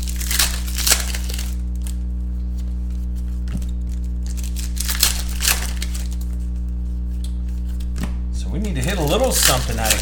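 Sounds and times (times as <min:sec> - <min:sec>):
foil wrapper crinkling and tearing: 0:00.0 - 0:02.2, 0:03.6 - 0:06.5, 0:08.8 - 0:10.0
cards being handled: 0:00.0 - 0:08.2, 0:08.8 - 0:10.0
steady low hum: 0:00.0 - 0:10.0.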